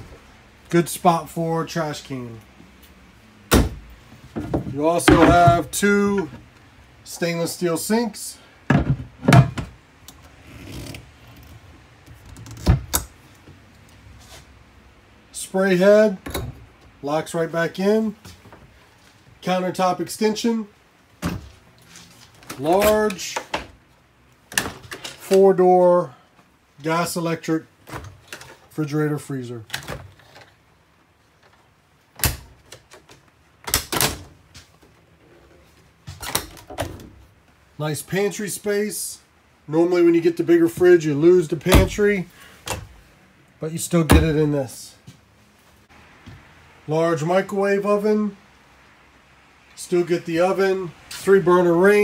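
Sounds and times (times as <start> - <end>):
doors opening and shutting: 2.8 - 6.6, 8.7 - 13.6, 15.9 - 17.0, 21.2 - 23.8, 31.4 - 37.3, 40.6 - 43.0, 43.9 - 44.6.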